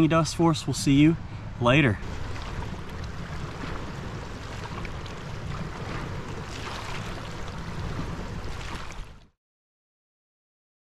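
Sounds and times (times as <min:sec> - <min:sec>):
wind buffeting microphone: 0:00.9 - 0:09.3
waves lapping on rocks: 0:02.0 - 0:09.3.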